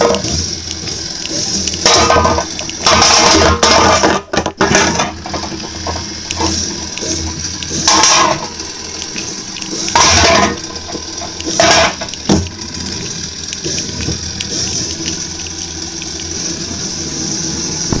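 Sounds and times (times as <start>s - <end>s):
toy robot motors whining: 5.0s - 18.0s.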